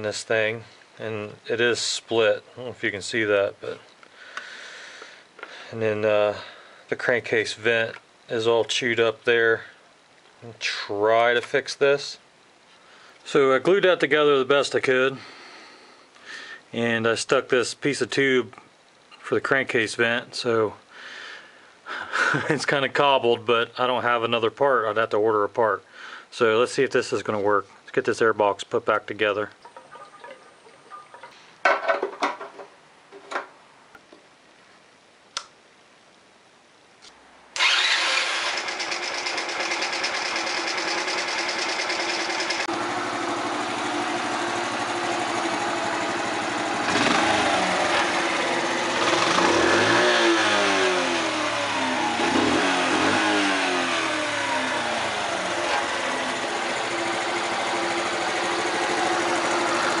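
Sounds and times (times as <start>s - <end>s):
knocks and clatters: 29.6s - 33.6s
motorcycle engine starting and revving: 37.6s - 60.0s.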